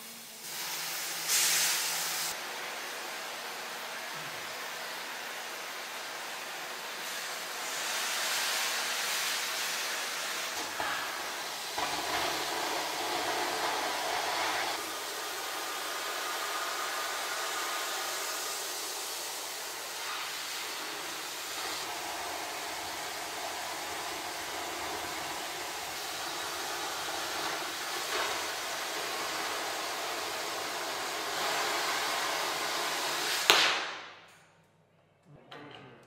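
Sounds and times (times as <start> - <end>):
cutting torch hissing: 0.0 - 34.0
torch flame pop: 33.4 - 34.2.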